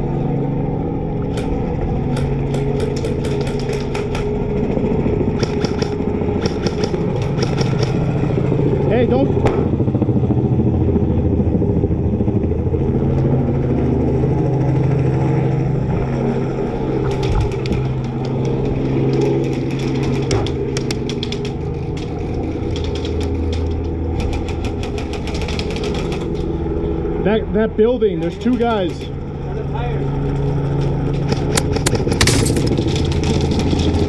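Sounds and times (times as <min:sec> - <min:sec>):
engine running steadily: 0:00.0 - 0:34.0
airsoft guns firing: 0:05.4 - 0:08.0.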